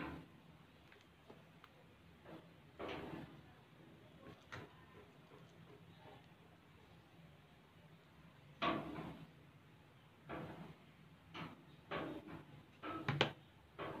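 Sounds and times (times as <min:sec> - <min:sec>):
slime squelching: 0:04.2 - 0:06.4.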